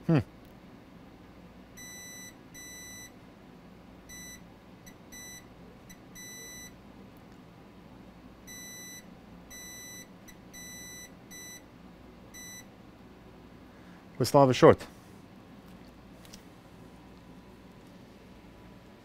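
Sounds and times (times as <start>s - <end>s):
multimeter beeps: 1.8s - 3.2s, 4.1s - 6.8s, 8.5s - 11.7s, 12.3s - 12.7s.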